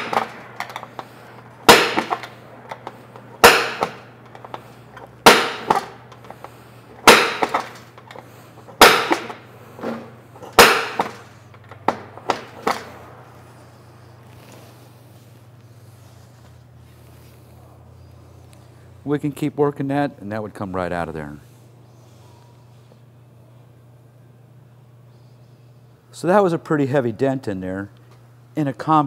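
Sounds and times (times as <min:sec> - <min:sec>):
chisel striking metal: 0:01.7 - 0:02.3, 0:03.4 - 0:04.1, 0:05.2 - 0:06.0, 0:07.0 - 0:07.7, 0:08.8 - 0:09.4, 0:10.5 - 0:11.2.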